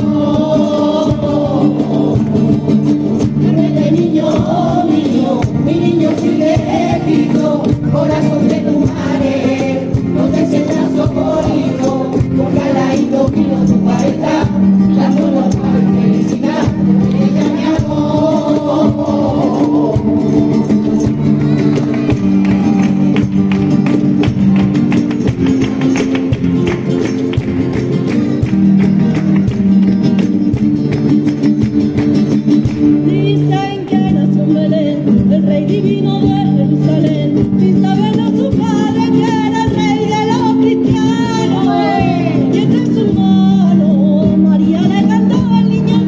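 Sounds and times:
choir singing: 0.0s - 21.9s, 41.5s - 42.6s
guitars strummed in flamenco rhythm: 0.0s - 46.0s
hand clapping: 11.5s - 33.1s.

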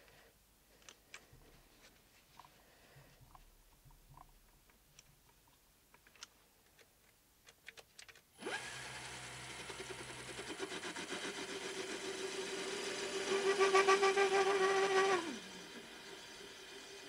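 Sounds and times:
lathe motor whining and humming: 8.4s - 17.0s.

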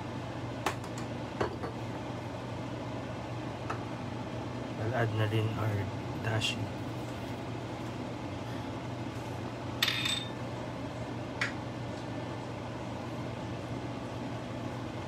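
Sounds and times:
steady low hum: 0.0s - 15.0s
dish clinking against pot: 9.8s - 10.4s.

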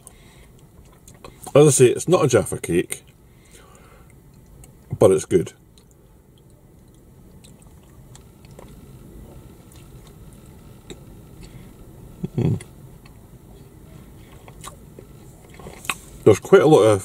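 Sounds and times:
man chewing: 0.0s - 1.6s, 5.7s - 13.2s, 14.1s - 16.2s
low mouth sound: 12.2s - 12.7s.

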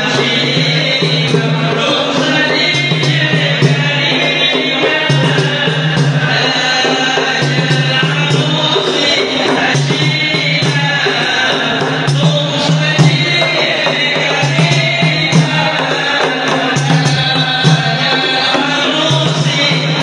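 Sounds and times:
frame drums beating: 0.0s - 20.0s
men chanting: 0.0s - 20.0s.

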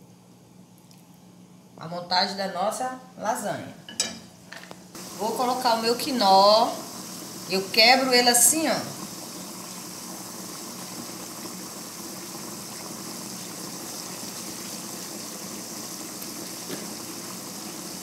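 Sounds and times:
sauce simmering in a frying pan: 4.9s - 18.0s.

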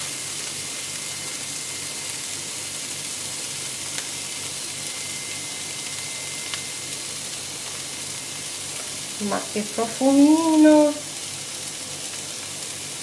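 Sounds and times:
broccoli sizzling in a pan: 0.0s - 13.0s.

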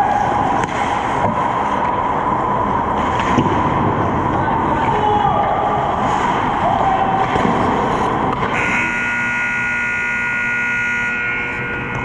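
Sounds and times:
hockey sticks and puck clacking: 0.0s - 2.2s, 3.0s - 3.8s, 4.8s - 8.9s.

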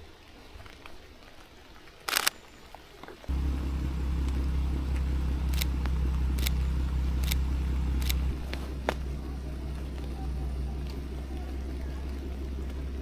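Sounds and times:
camera shutter clicks: 2.1s - 2.4s, 6.3s - 6.6s, 7.2s - 7.4s, 8.0s - 8.3s
car engine idling: 3.3s - 13.0s.

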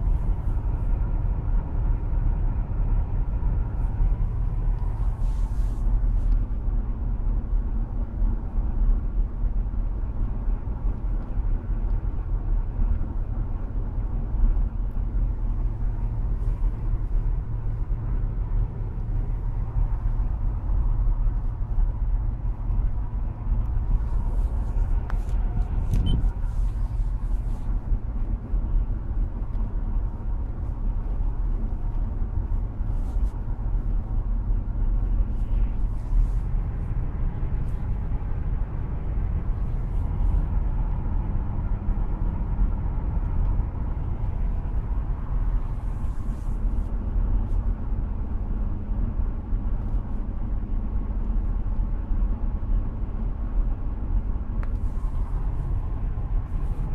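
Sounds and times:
tyres on the road: 0.0s - 56.9s
car engine running: 10.1s - 47.5s.

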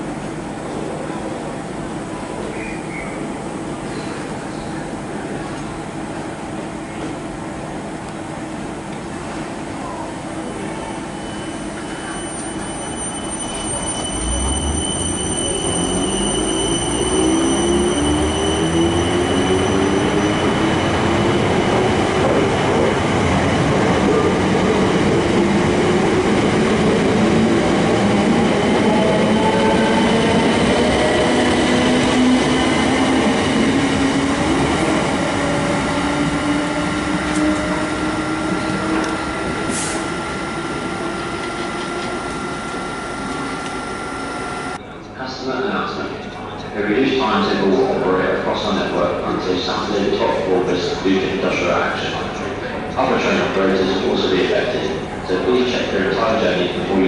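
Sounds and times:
wheels rumbling on rail: 0.0s - 44.8s
electric train motors whining: 35.2s - 44.8s
steady high whine: 36.9s - 44.8s.

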